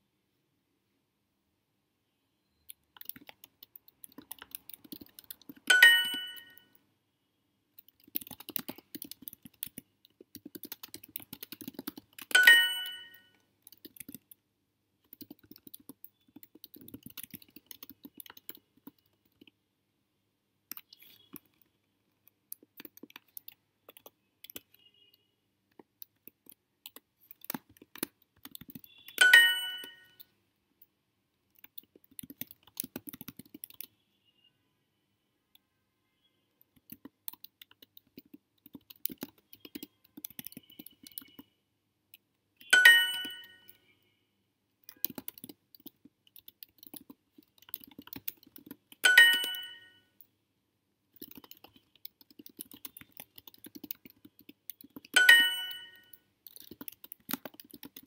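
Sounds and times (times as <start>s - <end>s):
keyboard typing: 2.6s - 6.7s, 7.8s - 19.6s, 20.6s - 30.4s, 31.4s - 34.0s, 36.6s - 43.9s, 44.8s - 50.2s, 51.1s - 58.0s
bright chime: 5.7s - 6.6s, 12.3s - 13.3s, 29.2s - 30.2s, 42.8s - 43.6s, 49.1s - 50.0s, 55.2s - 56.1s.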